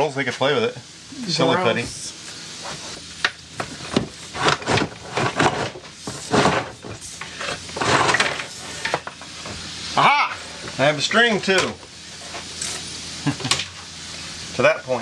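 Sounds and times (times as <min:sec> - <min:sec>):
wire scraping against wood: 0:02.6 - 0:09.4.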